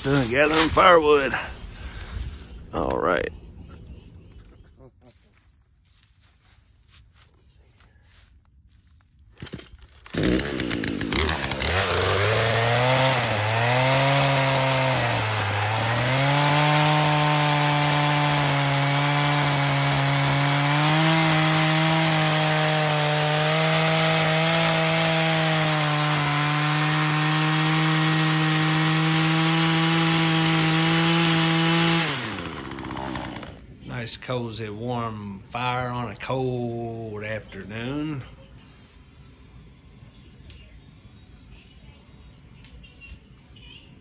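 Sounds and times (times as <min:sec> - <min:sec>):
chainsaw cutting wood: 0:09.4 - 0:33.7.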